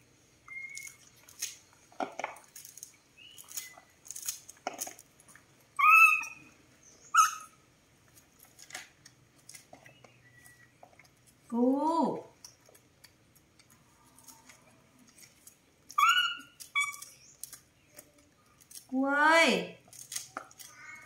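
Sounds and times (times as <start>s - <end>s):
baby monkey high calls: 5.8s - 7.6s, 15.9s - 17.2s.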